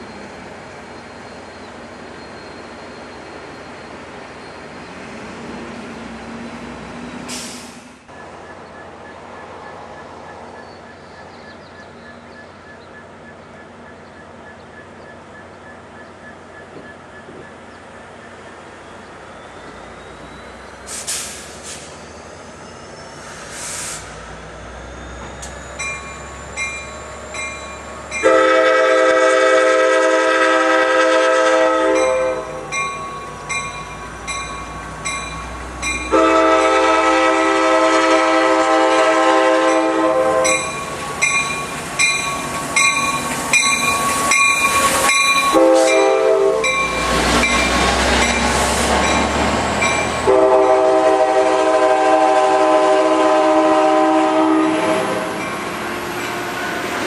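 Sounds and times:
train bell ringing: 24.9 - 28.5, 31.9 - 36.3, 39.7 - 50.3, 55.3 - 56.4
train chime horn blasts: 28.1 - 32.9, 35.9 - 40.9, 44.3 - 47.7, 49.8 - 55.6.

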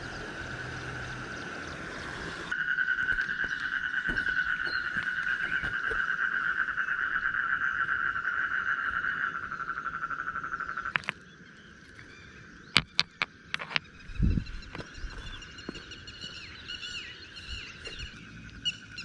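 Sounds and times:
stones knocking together: 10.9 - 11.2, 12.7 - 13.9.

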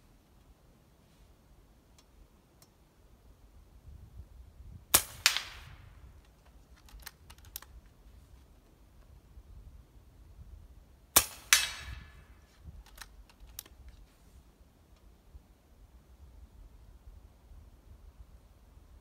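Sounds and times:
air rifle shot: 4.9 - 6.0, 11.2 - 12.5
light clicks: 12.8 - 14.1.

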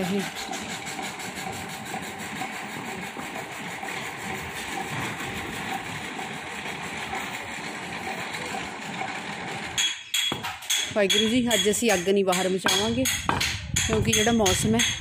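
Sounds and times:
machine running: 0.0 - 10.7.

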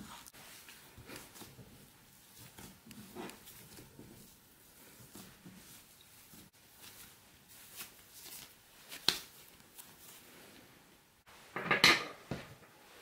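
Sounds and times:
dough squashing by hand: 0.0 - 10.0
kitchenware clattering: 11.5 - 12.8.

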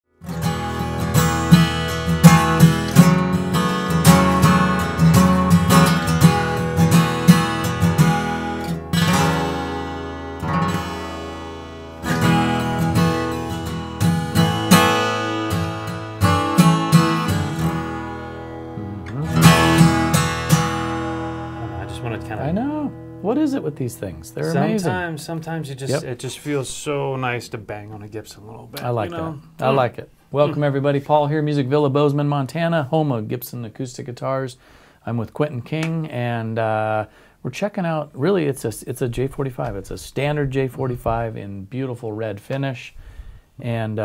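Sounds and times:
acoustic guitar strummed: 0.2 - 25.0.

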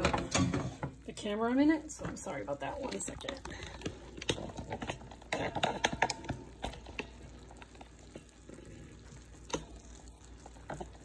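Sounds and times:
vegetables sizzling in a skillet: 4.1 - 11.0.

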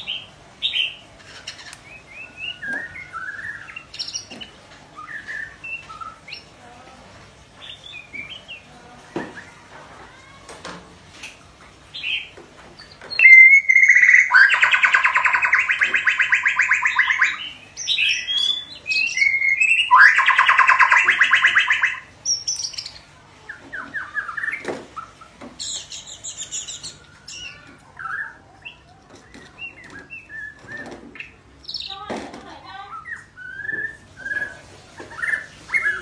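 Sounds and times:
bird chirps and whistles: 13.1 - 22.9, 32.8 - 36.0
high rapid bird trill: 13.1 - 28.8
loud pulsed bird rattles: 13.2 - 17.4, 19.2 - 22.1.

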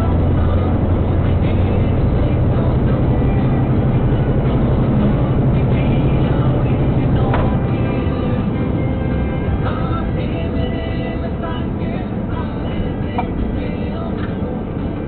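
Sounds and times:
vehicle engine drone from inside cab: 0.0 - 15.0.

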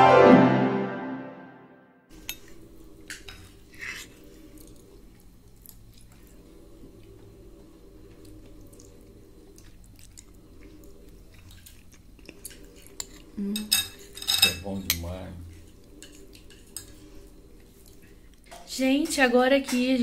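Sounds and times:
chewing: 3.8 - 13.4, 15.5 - 18.5
cutlery clicking on dishes: 13.0 - 15.1.

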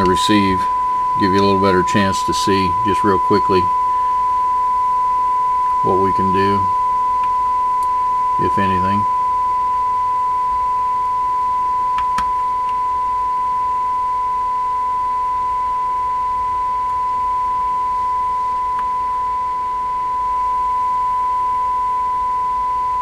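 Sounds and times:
radio test tone: 0.0 - 23.0.

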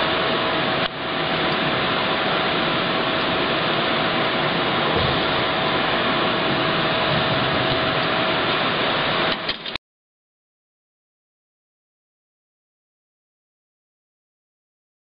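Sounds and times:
constant mid-pitched hum: 0.0 - 9.8
ventilation fan rushing: 0.0 - 9.8.

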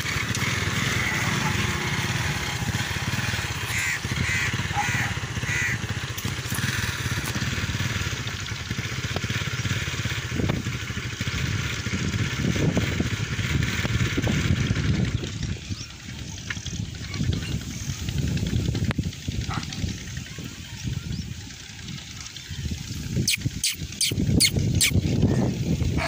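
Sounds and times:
motor rumbling: 0.0 - 26.0
crow cawing: 3.7 - 6.0.

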